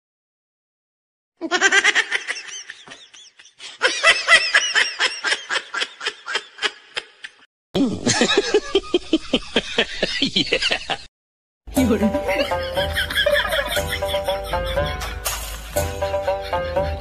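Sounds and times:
high-pitched laughter: 1.4 - 11.1, 12.3 - 15.2.

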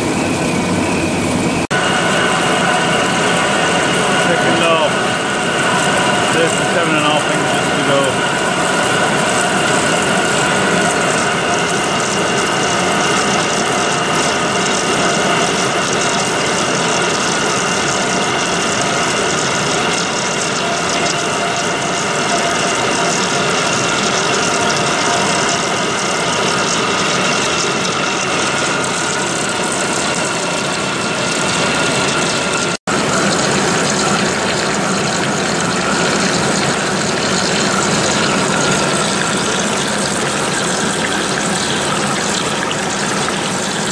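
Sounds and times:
coolant flowing: 0.0 - 43.9
faint machine whine: 0.0 - 43.9
lathe cutting steel: 1.1 - 43.9.

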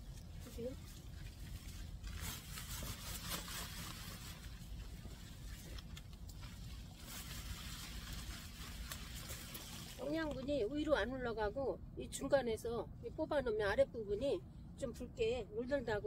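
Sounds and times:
leaves and stems rustling: 0.0 - 10.4.

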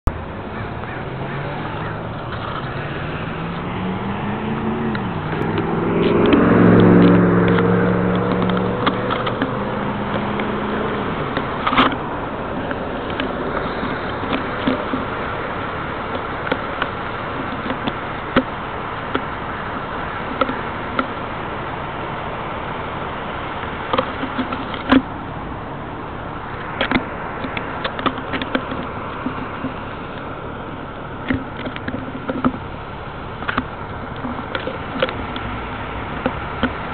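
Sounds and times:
car engines in traffic: 0.0 - 36.9
road noise: 0.0 - 36.9
bicycle riding noise: 0.2 - 36.9
car passing close: 0.2 - 36.9
sharp clicks and rattles: 1.7 - 3.8, 4.5 - 21.3, 23.3 - 25.2, 25.8 - 36.9.

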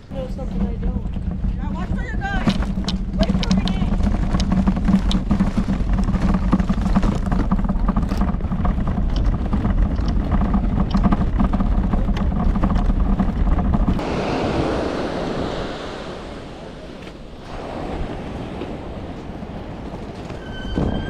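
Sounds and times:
cart rolling over pavement: 0.0 - 14.0, 18.6 - 21.0
gear clicking and clattering: 0.0 - 14.0
ocean surf: 14.0 - 21.0.

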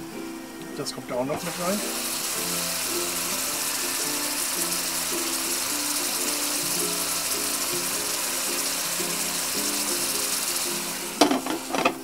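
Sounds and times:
background music plucked melody: 0.0 - 12.0
prawns sizzling in pan: 0.0 - 12.0
glass lid clanking on pan: 11.2 - 12.0.

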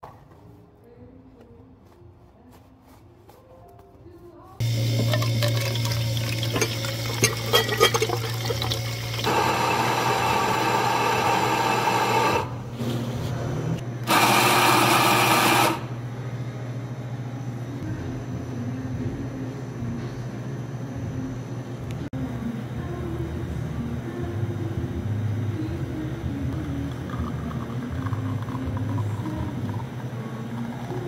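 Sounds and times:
espresso machine pump hum: 4.6 - 12.7, 14.0 - 16.6, 25.6 - 31.0.

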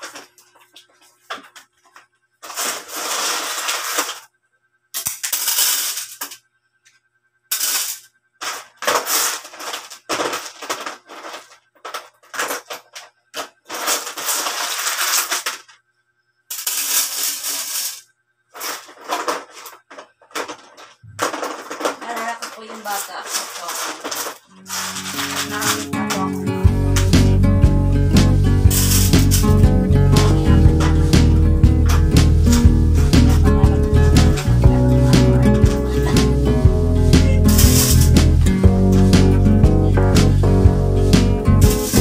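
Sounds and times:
accessories rattling: 8.4 - 15.8, 18.6 - 26.3, 37.5 - 38.2.

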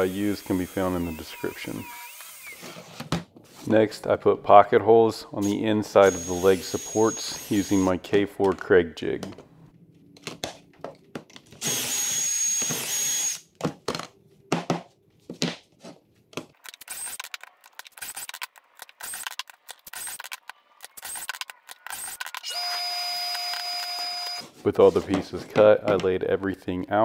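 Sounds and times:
cordless drill boring wood: 0.0 - 2.8, 6.0 - 7.9, 11.6 - 13.4, 16.9 - 17.3, 18.0 - 18.3, 19.0 - 19.4, 21.0 - 24.4.

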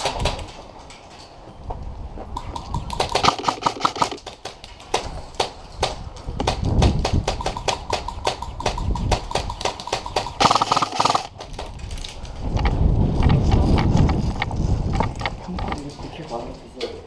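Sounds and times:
airsoft gunfire snaps: 2.4 - 11.4.

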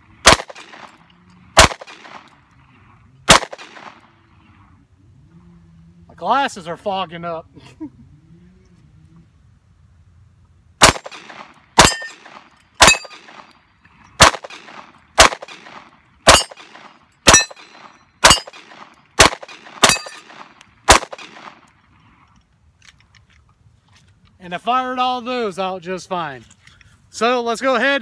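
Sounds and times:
pistol shots: 0.2 - 1.0, 1.6 - 2.4, 3.3 - 4.1, 10.8 - 13.5, 14.2 - 21.7
bullet ringing on steel plate: 11.8 - 13.6, 16.3 - 18.7, 19.8 - 20.3.

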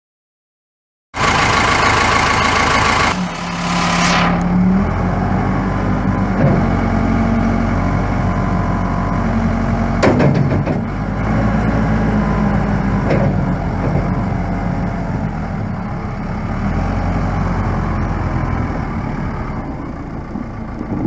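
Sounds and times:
diesel engine starter cranking: 1.2 - 3.9
diesel engine idling: 1.2 - 6.0.

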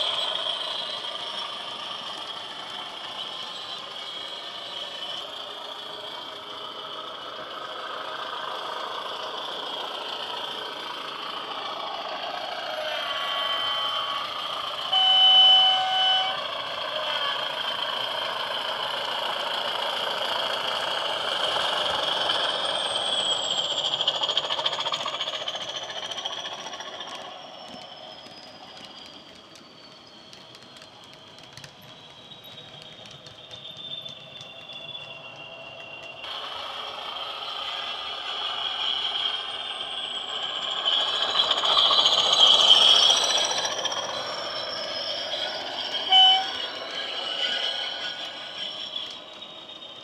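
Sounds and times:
model diesel locomotive engine: 0.0 - 50.0
two-tone horn: 14.9 - 17.4, 46.1 - 46.6.

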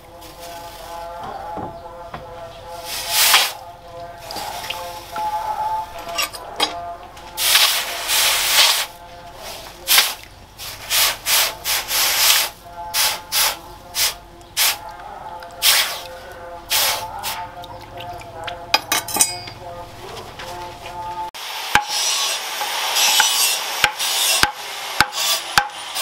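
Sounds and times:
hot steel hissing in water: 9.8 - 14.8, 21.4 - 26.0.

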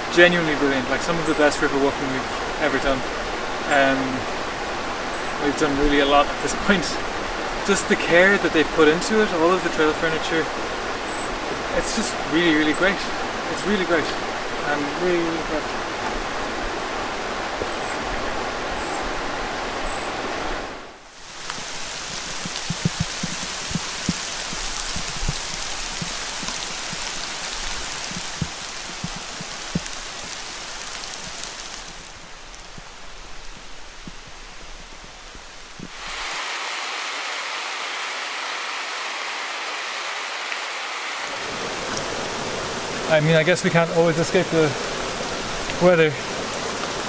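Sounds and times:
steady rain hiss: 0.0 - 47.0
close raindrop taps: 21.4 - 34.4.

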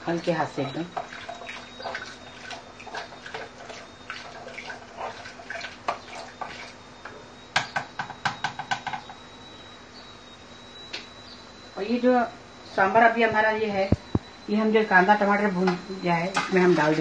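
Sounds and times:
spoon stirring wet food in pot: 0.9 - 6.8.

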